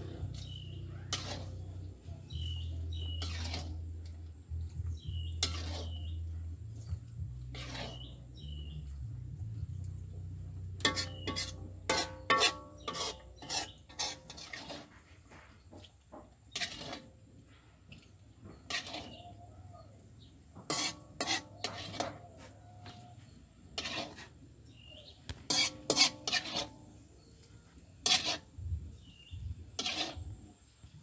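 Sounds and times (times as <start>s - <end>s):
metal ladle scraping wok: 0.0s - 9.0s, 9.6s - 19.4s, 20.5s - 30.7s
low hum: 0.0s - 10.9s.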